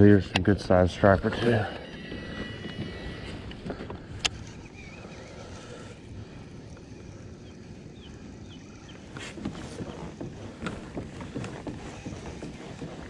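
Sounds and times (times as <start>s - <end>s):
fishing reel clicking and cranking: 1.1s - 9.2s
water lapping against kayak: 1.3s - 13.0s.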